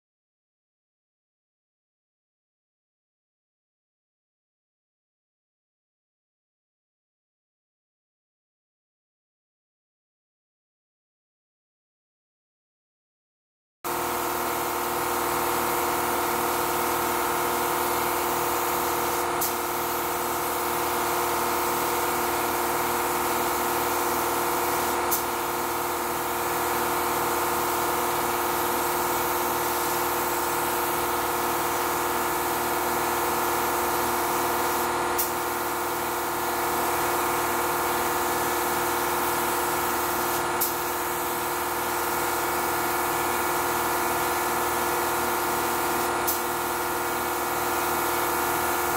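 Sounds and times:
air compressor humming: 13.9s - 48.9s
spray gun hissing: 14.2s - 48.9s.

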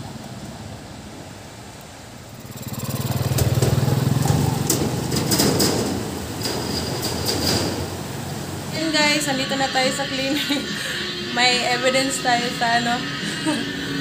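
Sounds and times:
motorcycle engine running: 2.2s - 6.6s
sharp clattering knocks: 2.4s - 8.2s.

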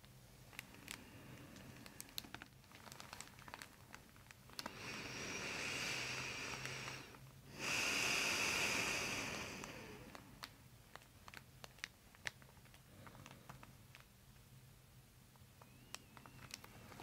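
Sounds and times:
deep breath rush of air: 4.6s - 10.4s.

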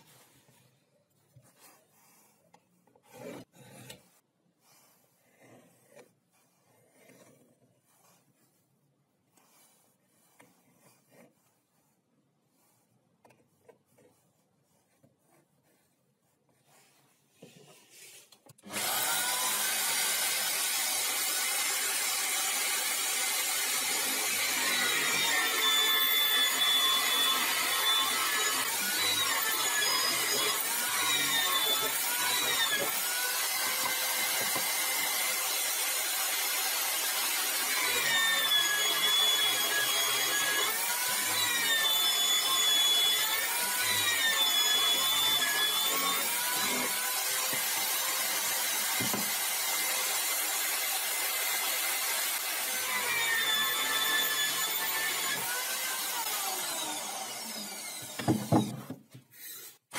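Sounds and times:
faint scratching: 0.0s - 18.4s
electric drill cutting into wood: 18.6s - 59.8s.

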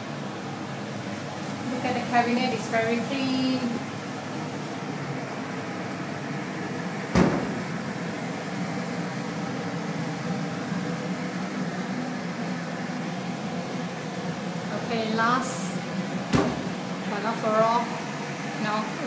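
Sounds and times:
steady low hum: 0.0s - 19.0s
cabinet door knocking shut: 7.2s - 7.6s.

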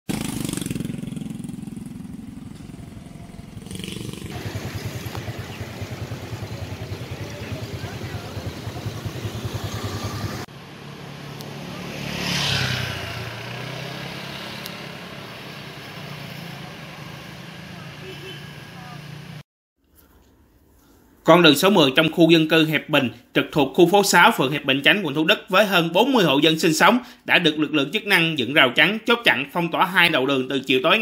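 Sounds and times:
motorcycle engine running: 0.1s - 19.4s
street and traffic noise: 0.1s - 19.4s.

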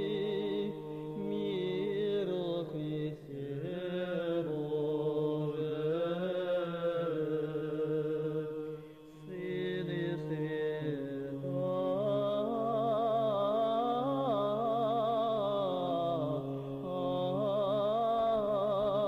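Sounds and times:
male choir chanting: 0.0s - 8.7s.

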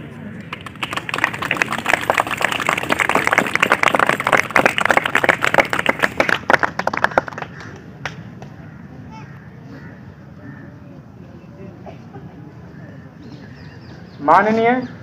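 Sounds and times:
crowd applauding: 0.4s - 8.2s.

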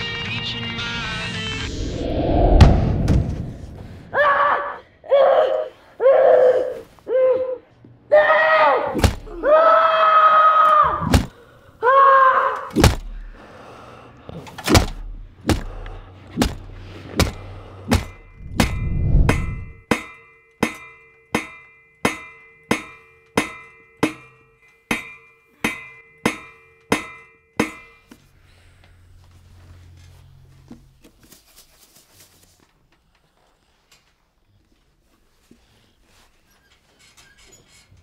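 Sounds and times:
sharp thuds: 1.8s - 4.1s, 12.8s - 13.3s, 14.7s - 19.8s
person crying out: 4.1s - 7.6s
held tone: 18.1s - 28.1s.

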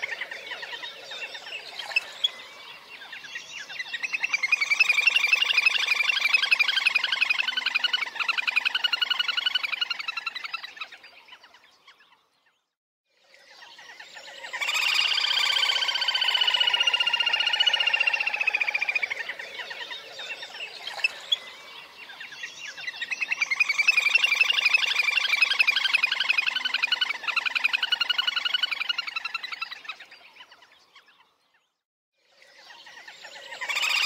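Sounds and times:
grebe calling in rapid trills: 14.4s - 21.3s, 23.0s - 30.0s.

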